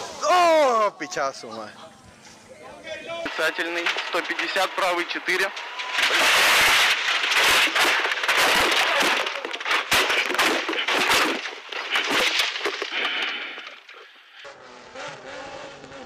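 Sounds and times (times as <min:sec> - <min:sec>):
car crash impacts and crunching: 0:03.3 - 0:14.0
windscreen shattering: 0:03.3 - 0:14.0.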